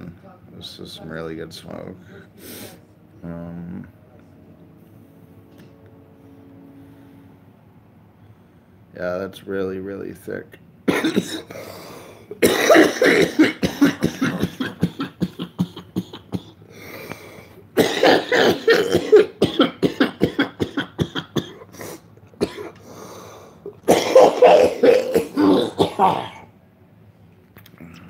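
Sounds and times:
man coughing hard: 0:10.9 - 0:11.7, 0:12.3 - 0:16.6, 0:17.8 - 0:22.8, 0:23.8 - 0:26.5.

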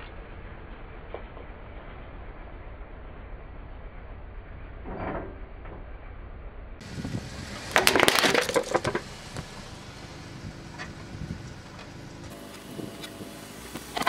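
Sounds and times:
plastic bowl cracking and shattering: 0:07.7 - 0:09.0.

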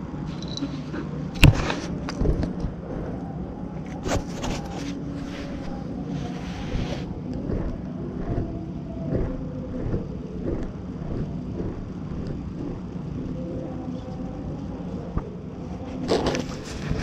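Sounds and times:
steady low rumble: 0:00.0 - 0:17.0
fur brushing over camera: 0:04.4 - 0:07.1.

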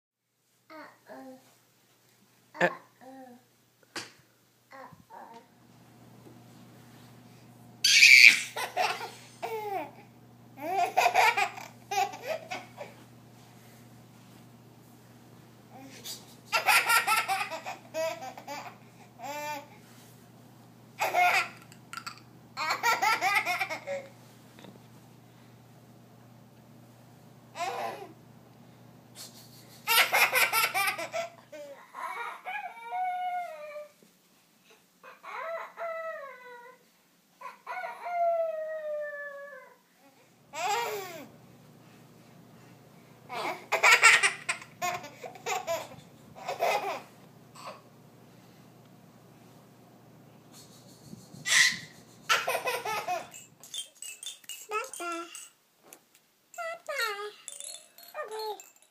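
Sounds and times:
baby calls sliding down in pitch: 0:07.8 - 0:08.6, 0:51.5 - 0:52.0
baby squealing: 0:07.8 - 0:09.1, 0:51.4 - 0:55.4
baby laughing: 0:07.8 - 0:10.0, 0:10.6 - 0:13.0, 0:16.5 - 0:19.7, 0:21.0 - 0:24.1, 0:27.6 - 0:28.2, 0:29.6 - 0:33.1, 0:40.6 - 0:41.3, 0:43.3 - 0:47.8, 0:50.7 - 0:55.5.

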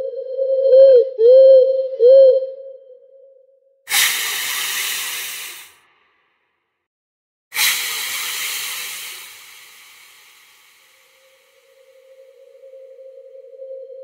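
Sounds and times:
long hisses: 0:03.9 - 0:05.8, 0:07.6 - 0:13.1.

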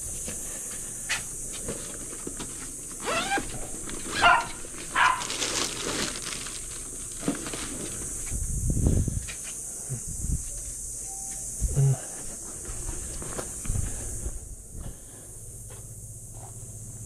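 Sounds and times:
dog barking: 0:04.1 - 0:05.4.

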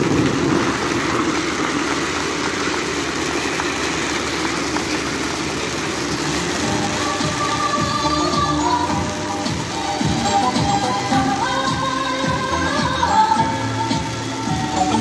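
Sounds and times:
crowd clapping: 0:00.0 - 0:09.1
spark fountains hissing: 0:00.0 - 0:15.0.

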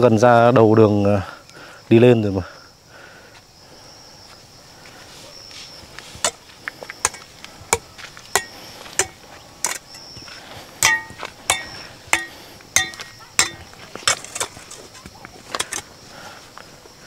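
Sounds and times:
metal hoes striking stony earth: 0:06.2 - 0:10.1, 0:10.8 - 0:15.9.

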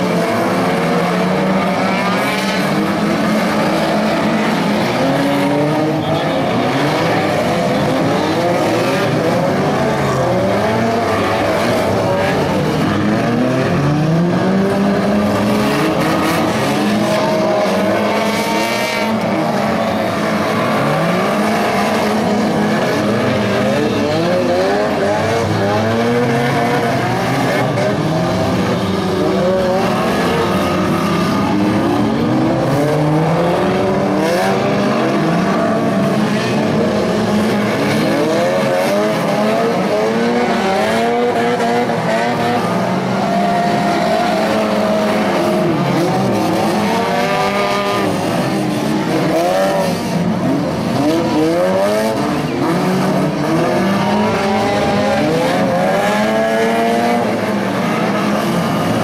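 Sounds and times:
race car engines revving: 0:00.0 - 0:59.0.

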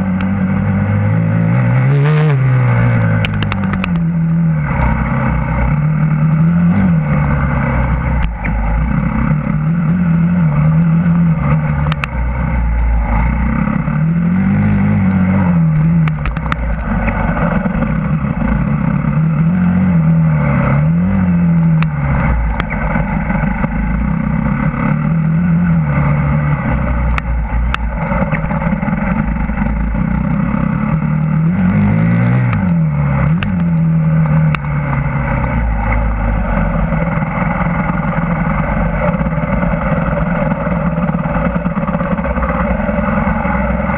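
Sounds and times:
dirt bike engine revving: 0:00.0 - 0:43.9
sharp clicks: 0:02.7 - 0:05.0, 0:10.7 - 0:12.2.

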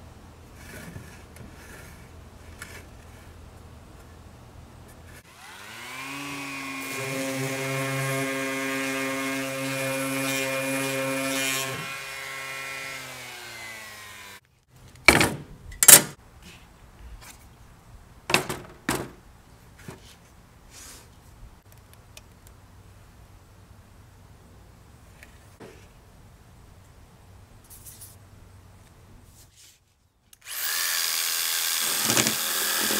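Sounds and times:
power tool motor whine: 0:30.4 - 0:32.9.

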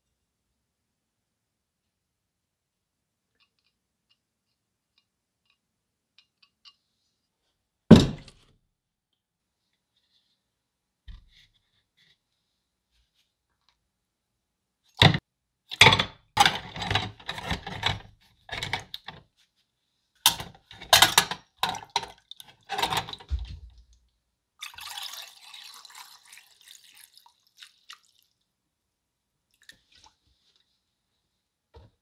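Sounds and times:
metal parts splashing in liquid: 0:15.8 - 0:19.1, 0:20.3 - 0:23.3
liquid pouring trickle: 0:24.6 - 0:28.4.

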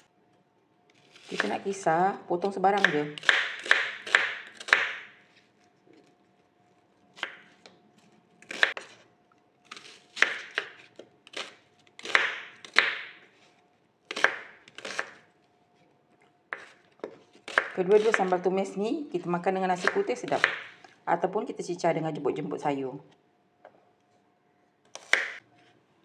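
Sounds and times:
knife chopping on wooden board: 0:02.8 - 0:05.1, 0:10.2 - 0:13.2, 0:14.1 - 0:15.2, 0:16.5 - 0:18.3, 0:19.8 - 0:20.7, 0:24.9 - 0:25.4.

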